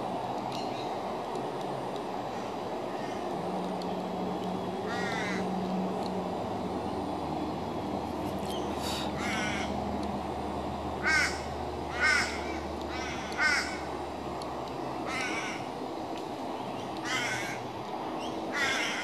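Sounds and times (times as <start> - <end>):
bird cawing: 2.3 - 3.3, 4.9 - 5.6, 8.8 - 9.8, 11.0 - 13.9, 15.0 - 15.7, 17.0 - 17.6, 18.5 - 19.0.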